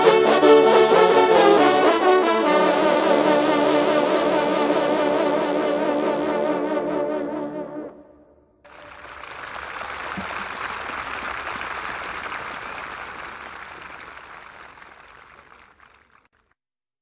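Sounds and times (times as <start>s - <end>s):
audience applauding: 8.7s - 16.3s.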